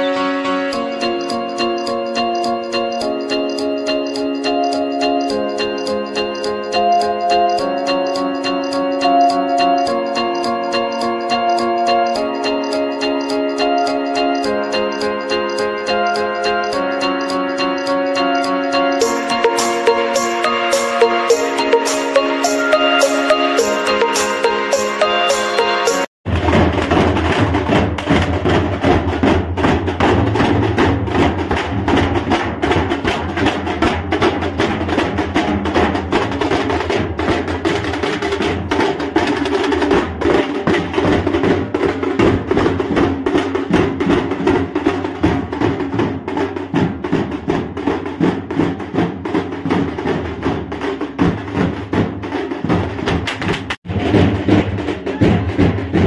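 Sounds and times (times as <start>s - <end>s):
steel drums beaten with sticks: 0.1s - 56.0s.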